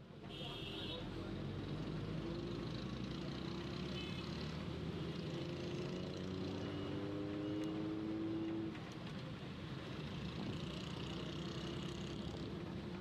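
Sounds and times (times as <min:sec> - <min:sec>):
traffic engines running: 0:01.0 - 0:13.0.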